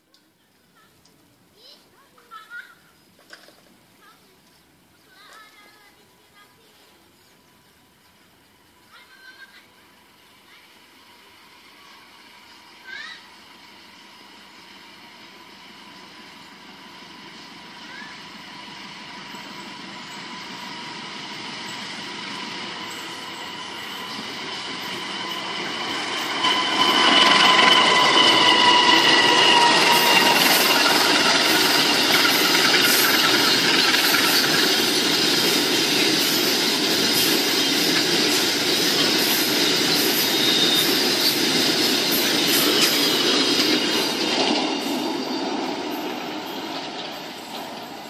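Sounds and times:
diesel locomotive passing: 3.8 - 48.0
high tone dropping in pitch: 23.6 - 32.2.

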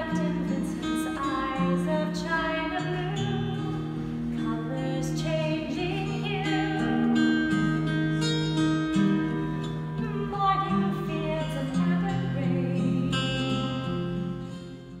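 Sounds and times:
person singing: 0.0 - 3.8, 10.0 - 13.3
acoustic guitar music: 0.0 - 15.0.

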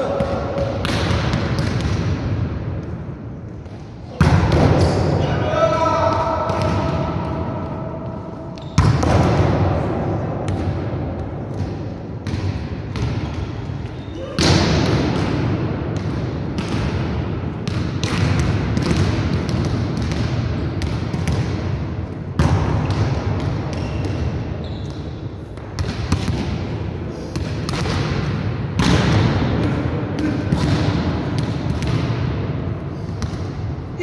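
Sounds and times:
volleyballs hit and bouncing: 0.0 - 34.0.

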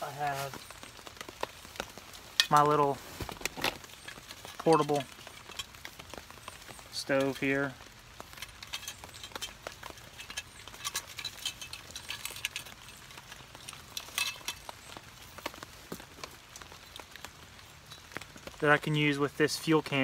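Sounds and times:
metal camping gear clinking: 0.0 - 20.0
rain pattering on tarp: 0.0 - 20.0.

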